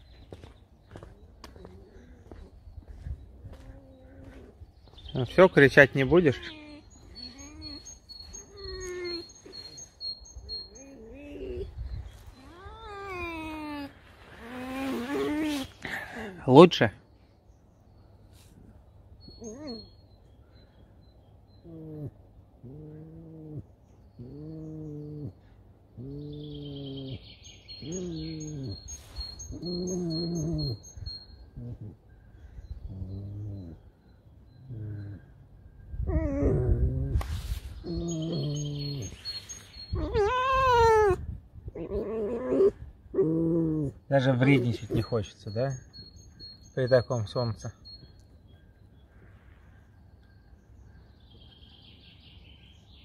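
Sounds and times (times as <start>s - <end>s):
fox whining: 3.4s - 4.7s, 5.7s - 15.9s, 19.2s - 20.0s, 21.6s - 46.6s.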